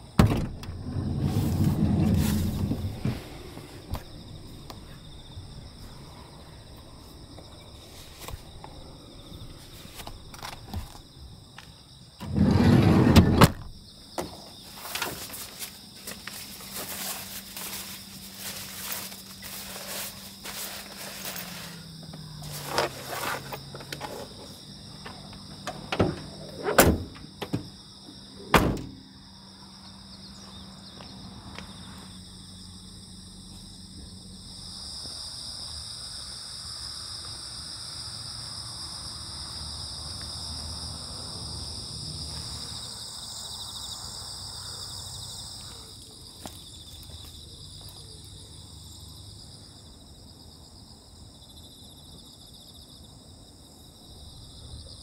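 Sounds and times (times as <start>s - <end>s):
insects chirring: 0.0s - 55.0s
loud thumps and knocks: 25.9s - 27.7s.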